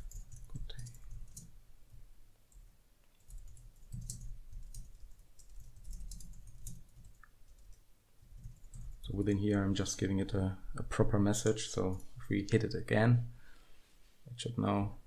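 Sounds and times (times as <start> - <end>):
keyboard typing: 0.0 - 1.5, 2.5 - 9.1.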